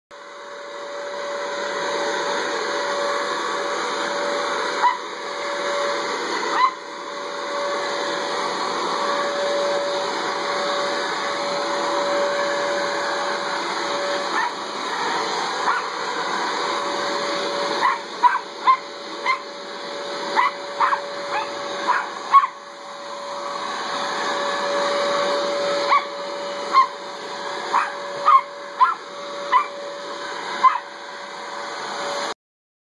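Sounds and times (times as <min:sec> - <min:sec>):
leaf blower whining: 0:00.2 - 0:32.4
dog barking: 0:04.8 - 0:05.1, 0:06.5 - 0:06.8, 0:14.3 - 0:14.6, 0:15.6 - 0:16.0, 0:17.8 - 0:19.5, 0:20.3 - 0:22.6, 0:25.9 - 0:26.1, 0:26.7 - 0:27.0, 0:27.7 - 0:29.8, 0:30.6 - 0:30.9.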